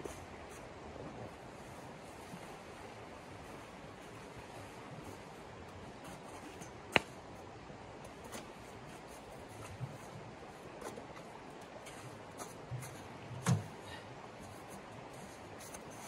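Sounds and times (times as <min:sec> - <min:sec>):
steady low hiss: 0:00.0 - 0:16.0.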